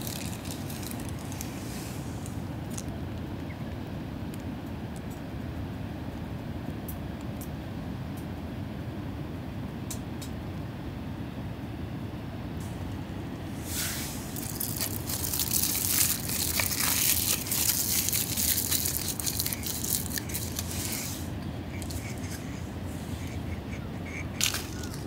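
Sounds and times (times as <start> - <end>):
aluminium foil crinkling: 0.0 - 2.9, 14.2 - 25.0
low background rumble: 0.0 - 25.0.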